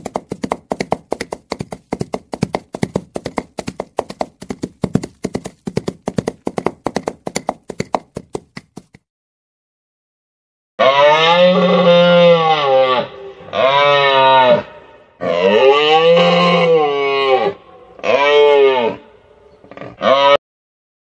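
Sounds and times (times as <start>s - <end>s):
horse hooves clip-clopping: 0.0s - 9.0s.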